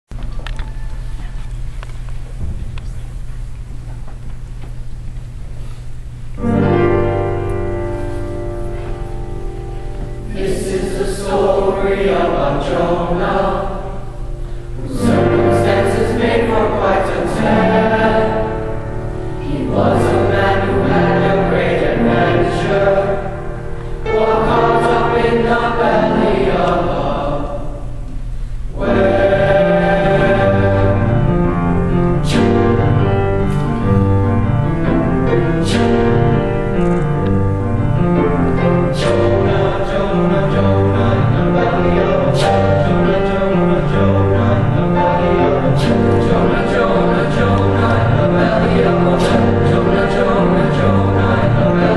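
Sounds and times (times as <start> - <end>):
upright piano: 6.4 - 51.9
boys' choir singing: 10.0 - 28.1, 28.7 - 34.0, 38.0 - 51.9.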